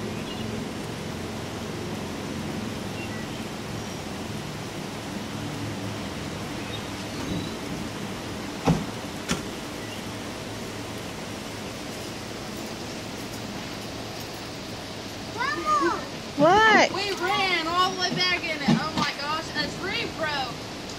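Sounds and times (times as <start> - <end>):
steady rain: 0.0 - 20.9
car door shutting: 8.6 - 9.5.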